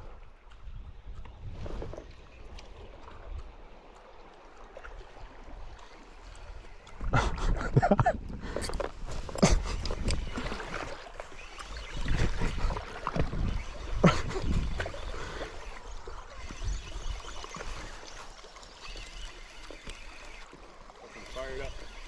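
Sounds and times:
water lapping on rocks: 0:00.0 - 0:22.0
fishing reel cranking: 0:13.4 - 0:22.0.

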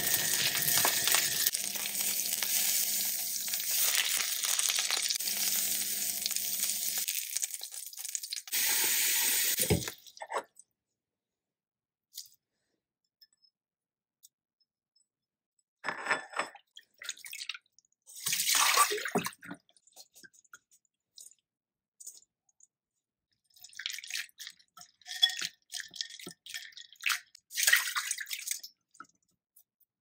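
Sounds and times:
water splashing in a metal bowl: 0:16.9 - 0:19.7, 0:23.4 - 0:29.0.

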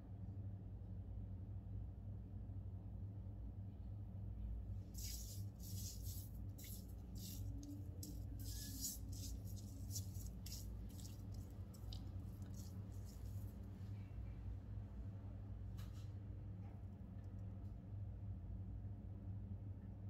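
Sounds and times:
steady low hum: 0:04.3 - 0:15.7
wet rubbing on skin: 0:05.0 - 0:13.9.

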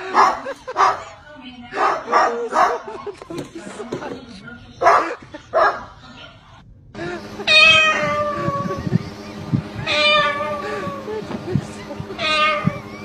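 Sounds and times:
cat meowing: 0:07.5 - 0:08.8, 0:09.8 - 0:11.0, 0:12.2 - 0:12.9.

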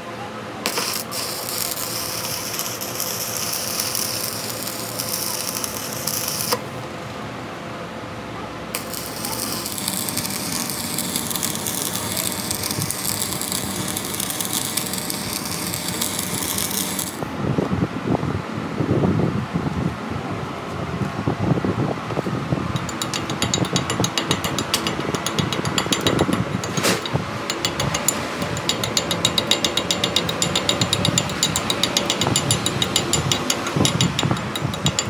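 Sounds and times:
crackling hissing metalwork: 0:00.6 - 0:06.8, 0:08.7 - 0:17.3, 0:22.8 - 0:35.0.

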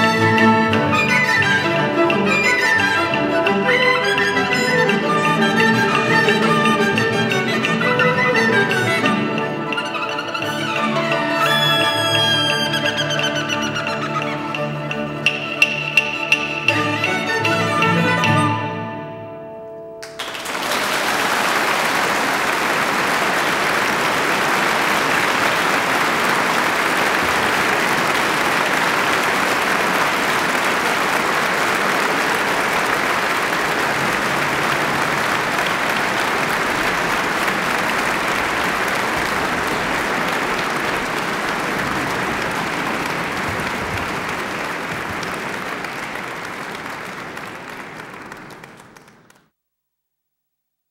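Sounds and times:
audience applauding: 0:20.0 - 0:49.5.

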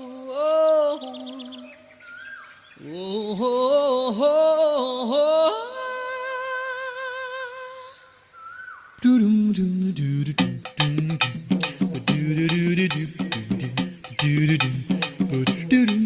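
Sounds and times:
song melody: 0:10.3 - 0:16.0.

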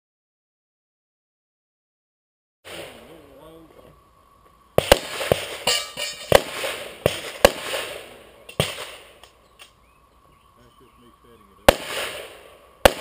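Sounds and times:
pistol shots echoing: 0:04.8 - 0:09.2, 0:11.6 - 0:13.0.

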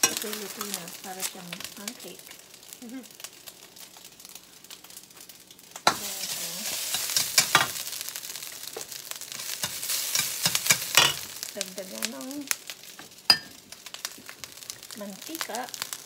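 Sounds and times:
rice sizzling in a skillet: 0:00.0 - 0:16.0
metal spatula scraping a pan: 0:05.9 - 0:07.8
spatula clicking on a pan: 0:06.9 - 0:07.8, 0:09.6 - 0:11.2.

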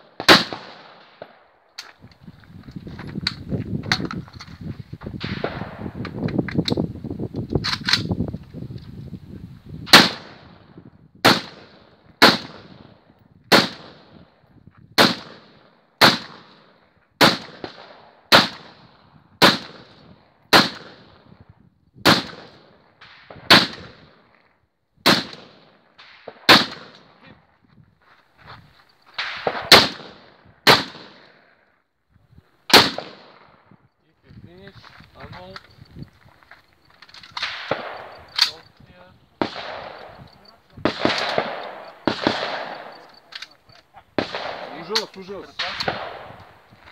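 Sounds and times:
gunshots: 0:00.0 - 0:01.4, 0:09.9 - 0:10.5, 0:11.2 - 0:12.9, 0:13.5 - 0:14.2, 0:15.0 - 0:18.8, 0:19.4 - 0:21.1, 0:22.0 - 0:24.1, 0:25.0 - 0:27.2, 0:29.2 - 0:31.4, 0:32.7 - 0:33.6, 0:37.4 - 0:38.7, 0:39.4 - 0:46.4.

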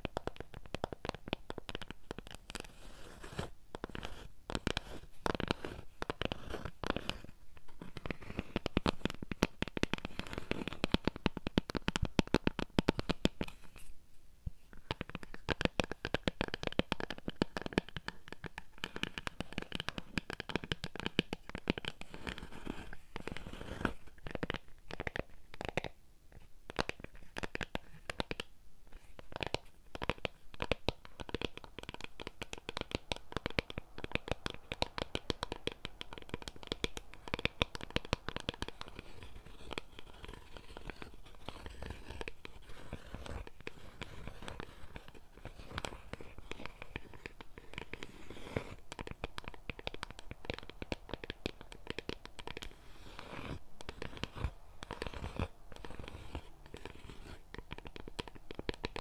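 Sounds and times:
fingernails scratching and tapping: 0:29.4 - 0:59.0.

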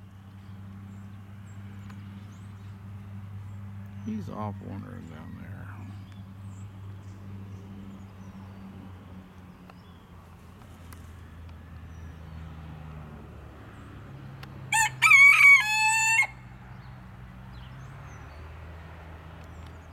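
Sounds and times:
rooster crowing: 0:14.7 - 0:16.5.

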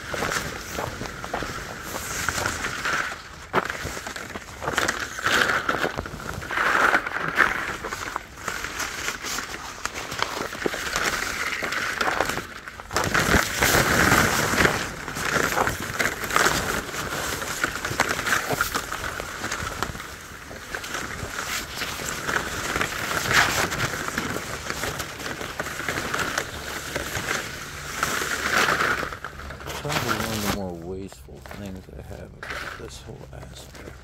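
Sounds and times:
plastic tubing rustling and scraping: 0:00.0 - 0:34.0.

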